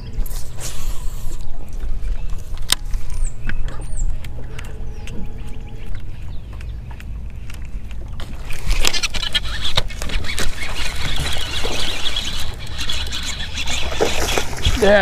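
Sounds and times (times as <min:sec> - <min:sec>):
fish splashing at water surface: 0:08.2 - 0:15.0.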